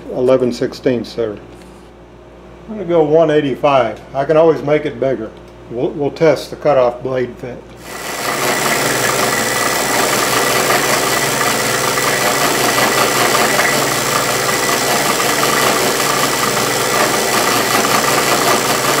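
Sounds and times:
milling machine cutting metal: 0:07.8 - 0:19.0.

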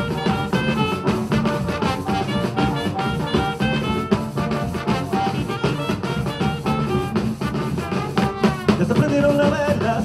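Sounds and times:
brass and saxophone band: 0:00.0 - 0:10.0
hand drums and bass drum: 0:00.0 - 0:10.0.

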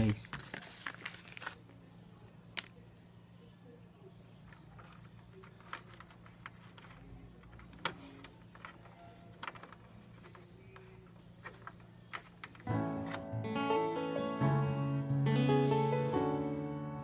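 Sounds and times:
clicks and taps of handling plastic parts: 0:04.5 - 0:12.7.

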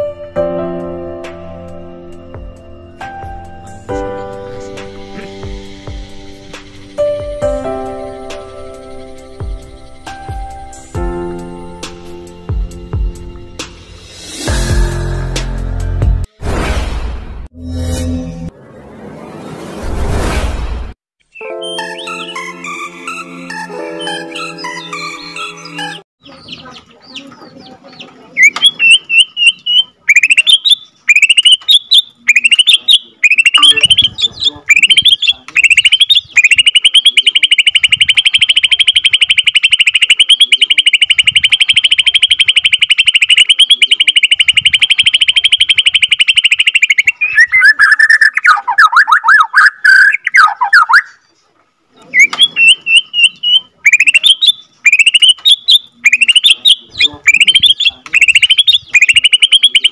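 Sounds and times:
bird singing: 0:08.8 - 0:10.6, 0:23.9 - 0:51.3, 0:52.0 - 0:59.9.

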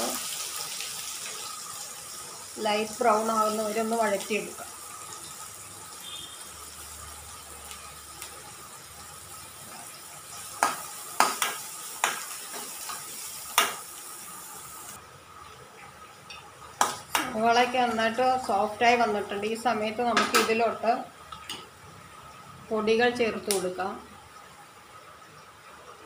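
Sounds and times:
onions sizzling in hot oil: 0:00.0 - 0:15.5.

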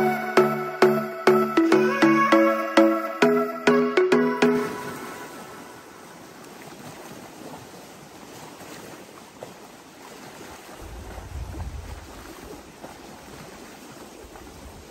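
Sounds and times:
small waves lapping at shore: 0:04.6 - 0:14.9
wind rumble on microphone: 0:10.4 - 0:13.6, 0:14.2 - 0:14.9.

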